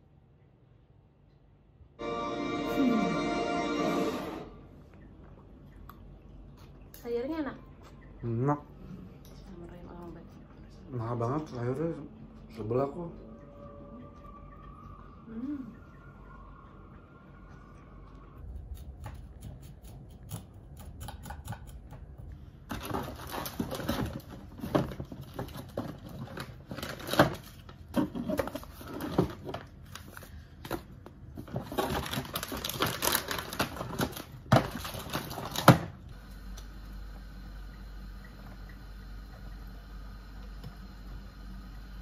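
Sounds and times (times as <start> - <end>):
paper packets rustling: 22.7 - 36.0.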